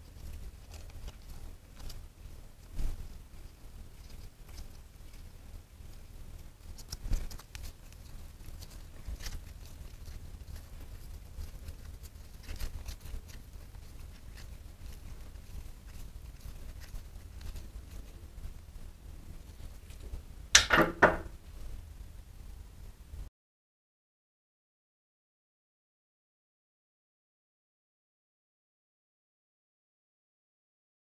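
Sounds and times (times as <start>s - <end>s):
low steady hum: 0.0s - 23.3s.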